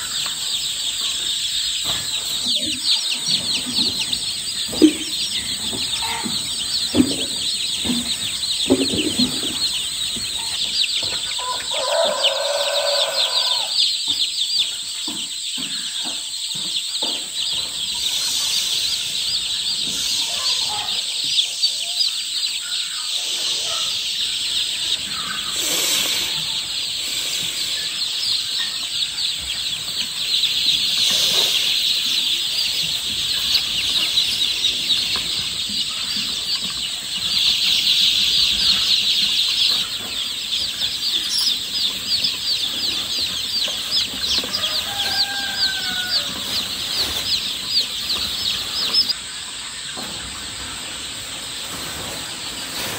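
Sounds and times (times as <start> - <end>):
chicks peeping: 0.0 - 52.9.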